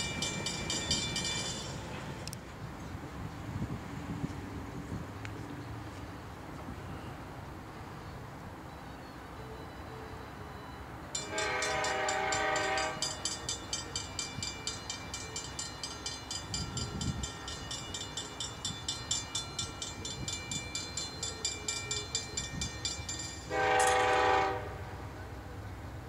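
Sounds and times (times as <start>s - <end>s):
railroad crossing bell ringing: 0.0s - 2.4s, 5.6s - 25.7s
locomotive horn blast: 11.2s - 13.2s, 23.5s - 25.2s.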